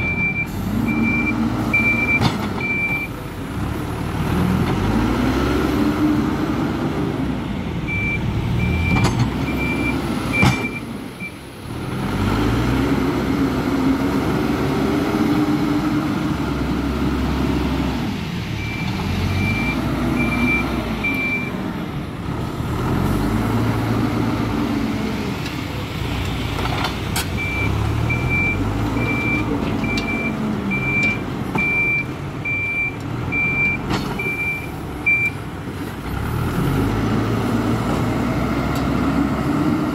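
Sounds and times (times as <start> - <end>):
reversing alarm beeping: 0.0 - 3.1, 7.9 - 11.4, 18.6 - 21.5, 27.4 - 35.4
diesel engine revving: 0.0 - 39.9.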